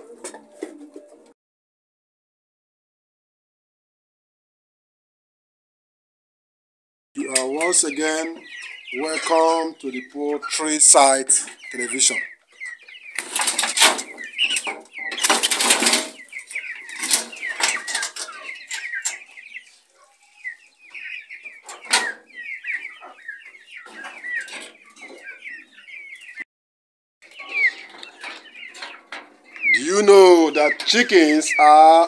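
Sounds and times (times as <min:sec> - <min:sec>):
chickens clucking: 0:00.0 - 0:01.4, 0:07.2 - 0:26.5, 0:27.2 - 0:32.0
rustling: 0:13.1 - 0:20.3.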